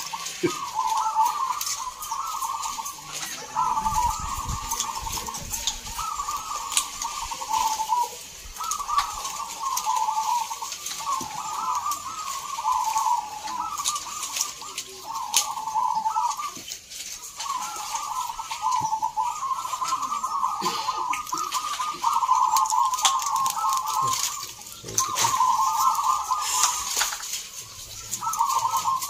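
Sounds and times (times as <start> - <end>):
doves cooing: 0.0 - 29.0.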